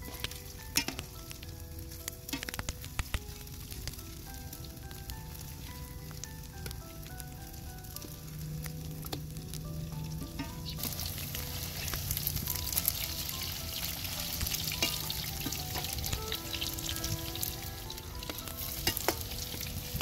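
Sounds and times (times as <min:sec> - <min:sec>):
faint background music: 0:00.0 - 0:20.0
patties frying in hot oil: 0:00.0 - 0:20.0.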